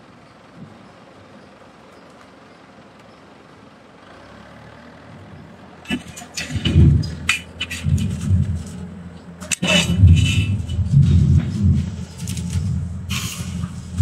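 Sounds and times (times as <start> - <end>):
forging machine rumbling: 5.7 - 14.0
sharp metallic clanks: 5.9 - 14.0.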